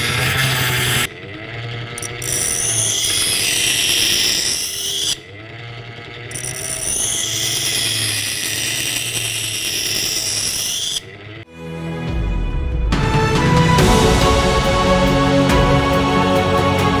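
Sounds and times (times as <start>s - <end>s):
knife scraping on grinding wheel: 0.0s - 11.5s.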